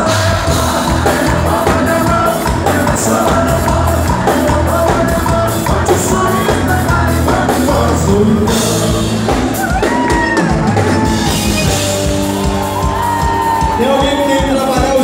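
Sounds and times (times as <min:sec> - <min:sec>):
person singing: 0:00.0 - 0:10.5
bass: 0:00.0 - 0:15.0
drum kit beat: 0:00.0 - 0:15.0
electric guitar: 0:00.0 - 0:15.0.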